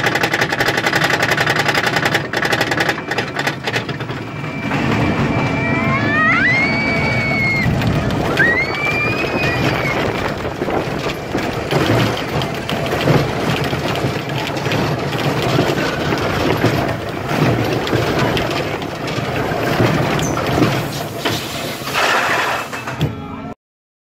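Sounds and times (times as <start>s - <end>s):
roller coaster wheels rumbling: 0.0s - 23.5s.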